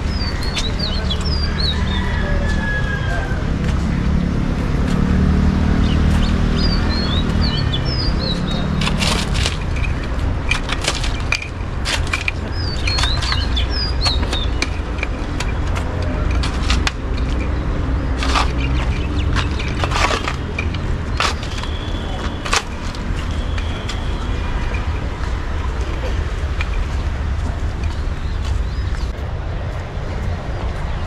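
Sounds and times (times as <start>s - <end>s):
small birds chirping: 0.0s - 2.3s, 5.6s - 10.2s, 12.3s - 29.3s
steady low rumble: 3.3s - 31.0s
sharp clicks and knocks: 8.7s - 29.2s.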